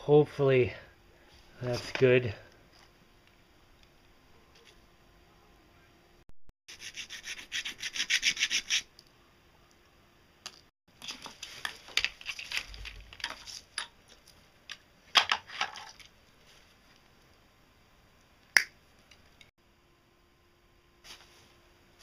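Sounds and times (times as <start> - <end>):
wire rustling and clicking: 10.5 - 16.2.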